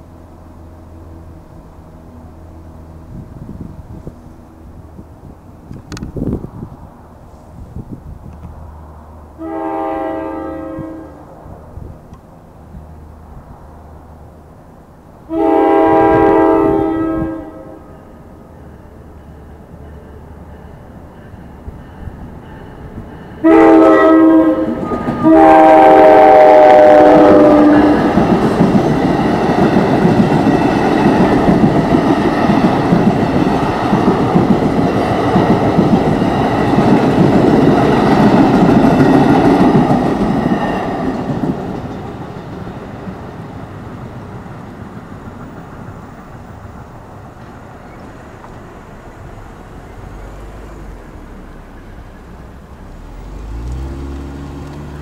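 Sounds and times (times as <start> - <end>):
train wheels on rails: 0.0 - 55.0
train horn blasts: 9.4 - 11.3, 15.3 - 18.1, 23.4 - 28.3.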